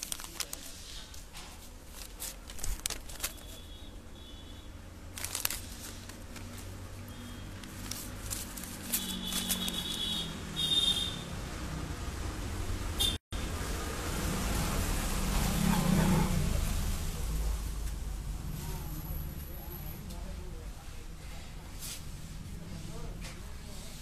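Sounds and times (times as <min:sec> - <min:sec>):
cable rubbing against clothing: 0:00.0 - 0:03.7, 0:07.5 - 0:10.2.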